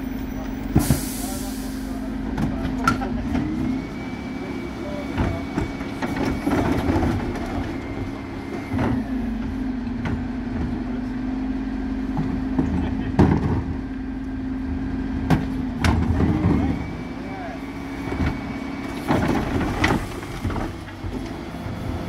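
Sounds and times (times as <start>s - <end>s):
bin lift whine: 0.0s - 22.0s
truck engine and hydraulics humming: 0.0s - 22.0s
bins knocking and clattering: 12.1s - 13.8s, 19.0s - 21.2s.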